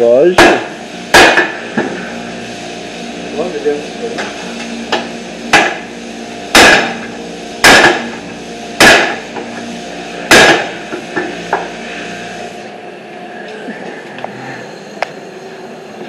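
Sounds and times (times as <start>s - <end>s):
hammer striking steel bar: 0.4s - 1.5s, 4.9s - 5.8s, 6.5s - 7.0s, 7.6s - 8.1s, 8.8s - 9.2s, 10.3s - 10.7s.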